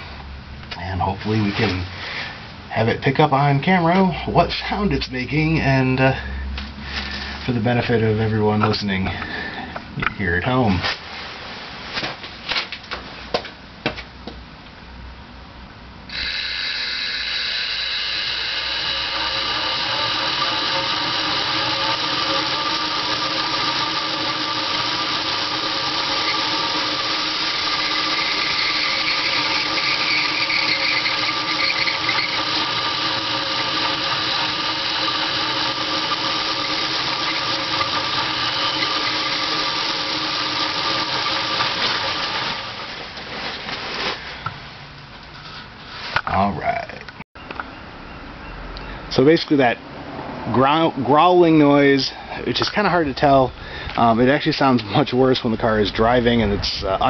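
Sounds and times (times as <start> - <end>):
metal-on-metal grinding: 16.1 - 42.7
electric motor spinning: 16.1 - 43.1
squeaking: 27.3 - 34.5.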